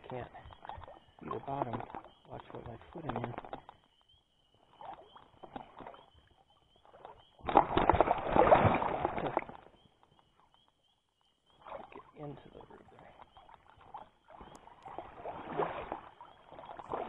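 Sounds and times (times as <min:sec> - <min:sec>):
wading splashes in stream water: 0:04.6 - 0:09.8, 0:11.6 - 0:17.0.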